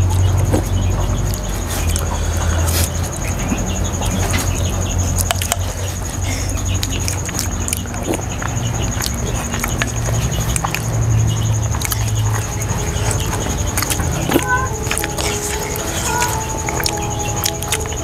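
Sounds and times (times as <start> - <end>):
people chewing: 0.0 - 18.0
steady high whine: 11.4 - 18.0.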